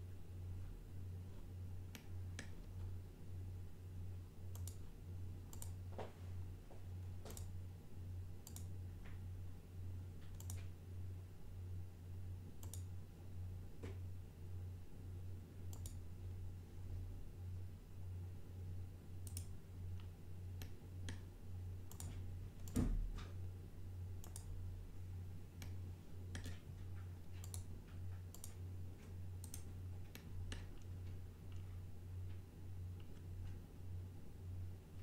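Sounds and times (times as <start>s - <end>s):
steady low hum: 0.0s - 35.0s
computer mouse clicking: 1.9s - 2.8s, 4.5s - 4.8s, 5.5s - 5.8s, 7.3s - 7.6s, 8.4s - 8.8s, 10.2s - 10.7s, 12.6s - 12.9s, 15.7s - 16.0s, 19.2s - 21.3s, 21.9s - 22.8s, 24.2s - 24.6s, 25.6s - 31.7s.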